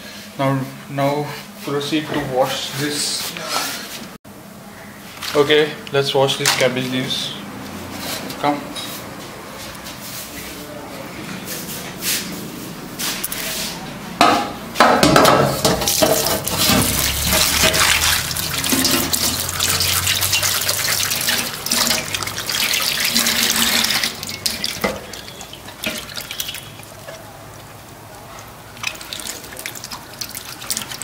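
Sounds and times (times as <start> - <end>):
kitchen tap running into sink: 15.0 - 27.6, 28.6 - 31.0.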